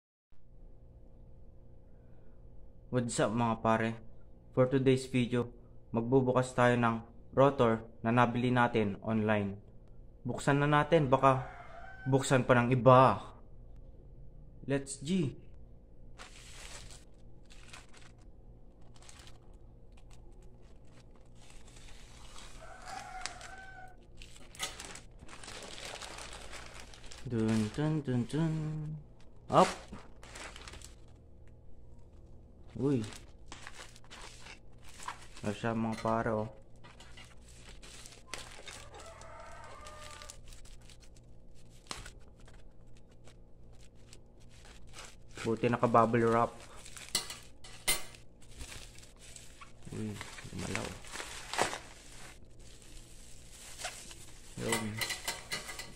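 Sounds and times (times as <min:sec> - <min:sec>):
rooster crowing: 0:11.0 - 0:12.6, 0:22.3 - 0:24.1, 0:38.2 - 0:40.6
plastic pouch crinkling: 0:16.2 - 0:35.8, 0:36.6 - 0:55.0
scissors cutting plastic: 0:19.0 - 0:25.0
scissors snipping bubble wrap: 0:46.3 - 0:52.3.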